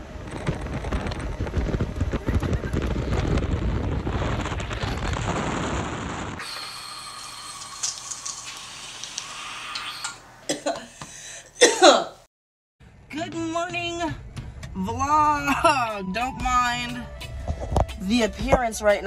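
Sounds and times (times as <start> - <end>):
wind buffeting microphone: 0.0 - 6.4.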